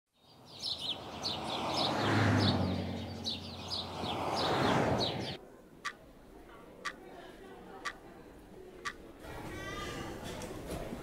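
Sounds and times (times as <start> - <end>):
small birds chirping: 0.1 - 5.4.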